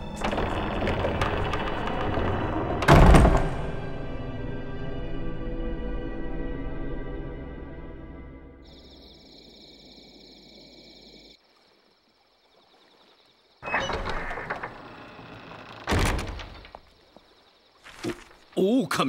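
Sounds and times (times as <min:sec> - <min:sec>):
loud thump: 0:02.8 - 0:03.8
insects chirring: 0:08.6 - 0:19.0.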